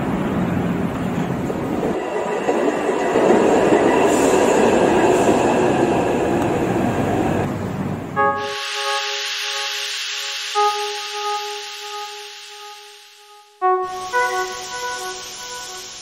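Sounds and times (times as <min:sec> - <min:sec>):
train rumbling ride noise: 0:00.0 - 0:12.5
faint steady tones: 0:08.2 - 0:16.0.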